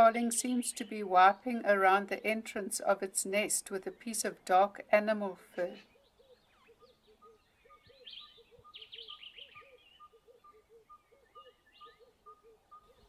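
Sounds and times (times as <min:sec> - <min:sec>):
faint wild birdsong: 0:00.0 - 0:13.0
rapid high bird chirps and trills: 0:05.8 - 0:13.0.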